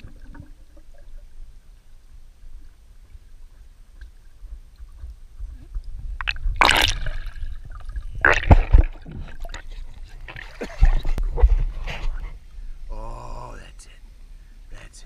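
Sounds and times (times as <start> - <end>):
low underwater rumble: 0.0 - 12.9
muffled underwater water sloshing: 0.0 - 12.9
loud splash: 6.6 - 7.6, 8.2 - 9.3.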